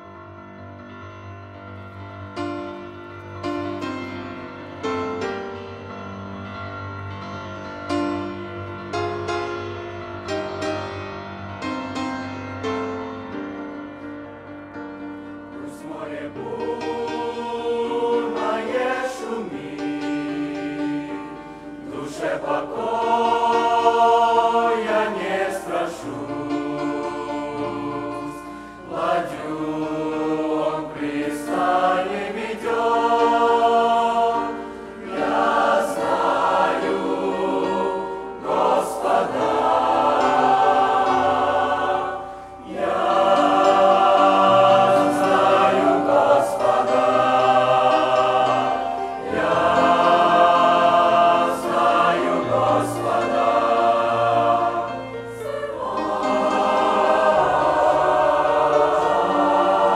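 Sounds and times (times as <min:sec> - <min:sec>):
youth choir singing a hymn: 0:14.8 - 0:59.9.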